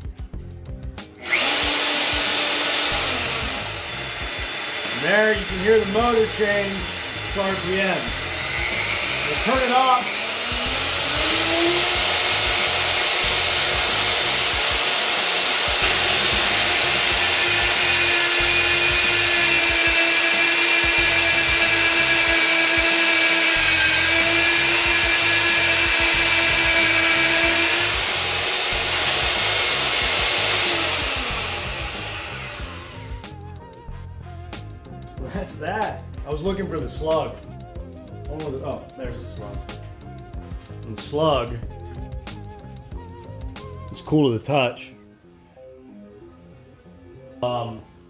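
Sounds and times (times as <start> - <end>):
cutter boring through steel pipe: 1.2 - 33.5
drill motor whining: 1.2 - 35.1.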